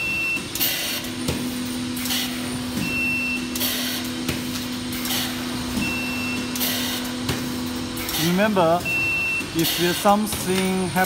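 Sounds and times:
steady machine hum: 0:00.0 - 0:11.0
short beep: 0:08.8 - 0:09.5.

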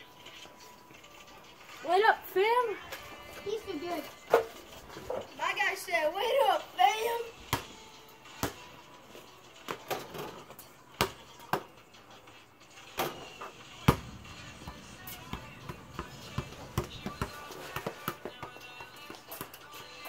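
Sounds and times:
basketball bouncing on pavement: 0:07.4 - 0:08.7, 0:11.0 - 0:11.8, 0:13.0 - 0:20.0.

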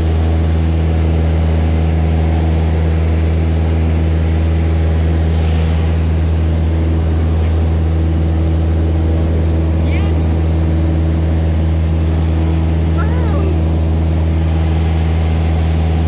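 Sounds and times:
light airplane engine drone: 0:00.0 - 0:16.0.

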